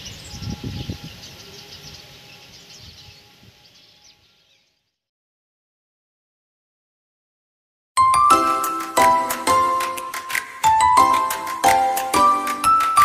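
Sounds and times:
small birds chirping: 0:00.0 - 0:05.1.

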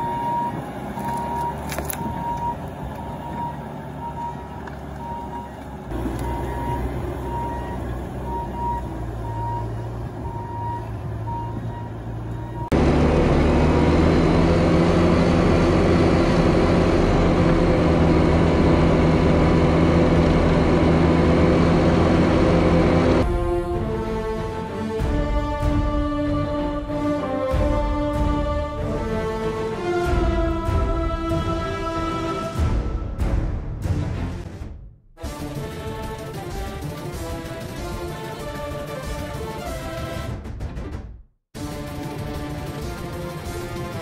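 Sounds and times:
backup alarm beeping: 0:00.0 - 0:12.7
diesel engine running: 0:00.0 - 0:26.7.

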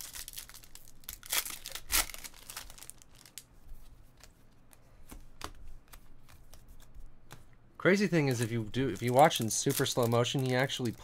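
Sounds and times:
foil wrapper crinkling: 0:00.0 - 0:03.4, 0:08.4 - 0:11.0
foil wrapper tearing: 0:00.0 - 0:03.4, 0:08.7 - 0:11.0.

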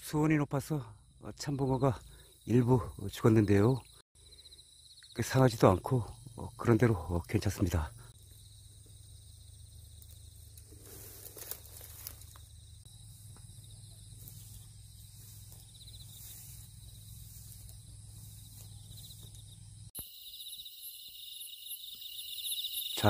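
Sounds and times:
crickets chirping: 0:00.0 - 0:23.0
insect trilling: 0:01.0 - 0:23.0.

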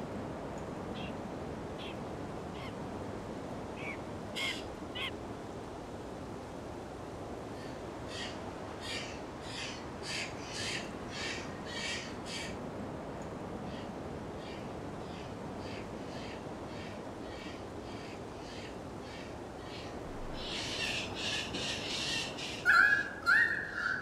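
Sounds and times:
steady background hiss: 0:00.0 - 0:24.0
bird harsh calls: 0:03.8 - 0:05.1, 0:20.4 - 0:24.0.

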